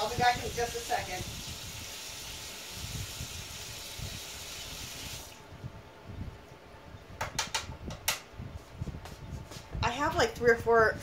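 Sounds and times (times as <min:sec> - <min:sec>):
water tap running: 0:00.0 - 0:05.4.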